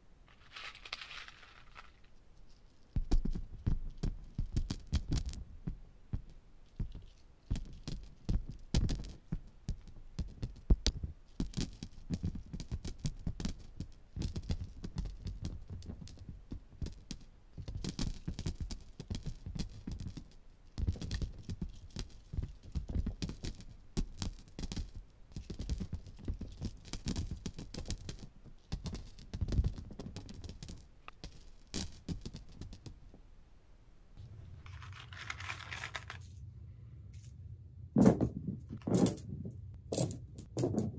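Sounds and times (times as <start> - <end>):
coins clinking onto cushion: 0.3 - 33.1, 34.7 - 36.4, 37.2 - 40.9
steady hum: 35.9 - 38.9.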